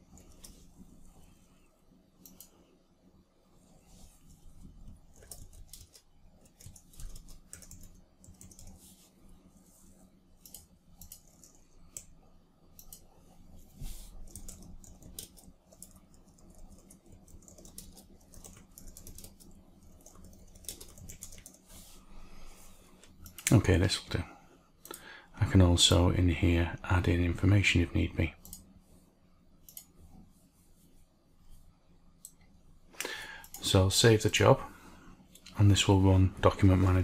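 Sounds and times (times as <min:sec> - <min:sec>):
keyboard typing: 0:04.8 - 0:08.8, 0:10.4 - 0:12.2, 0:14.1 - 0:21.7.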